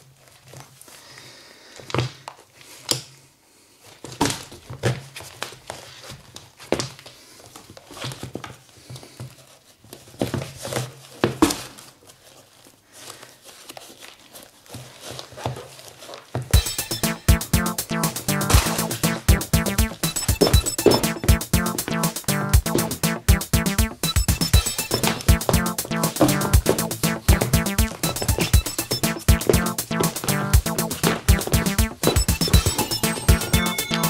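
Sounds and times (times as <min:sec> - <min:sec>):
sneakers rustling and crinkling: 0:03.9 - 0:16.6
knocks and taps: 0:17.0 - 0:34.0.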